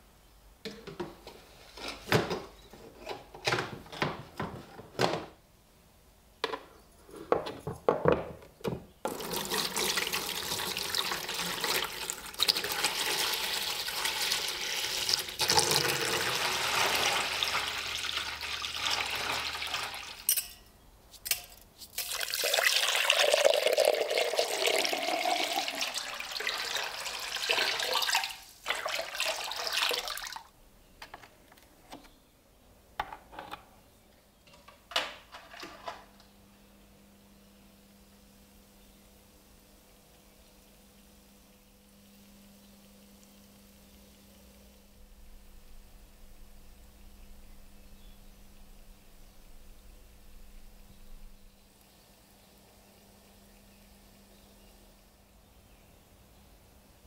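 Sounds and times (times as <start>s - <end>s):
water pouring into plastic tub: 9.1s - 20.3s, 22.0s - 30.5s.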